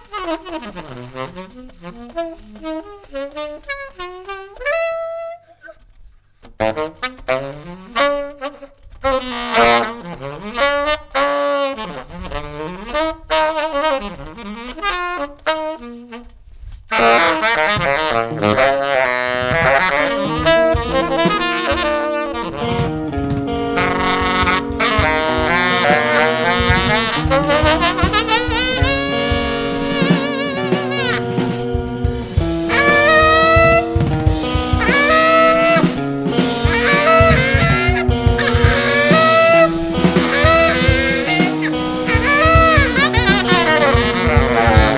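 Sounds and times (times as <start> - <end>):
electric guitar: 0.0 - 44.9
tenor saxophone improvising: 0.0 - 44.9
drum and cymbal hits: 19.4 - 44.9.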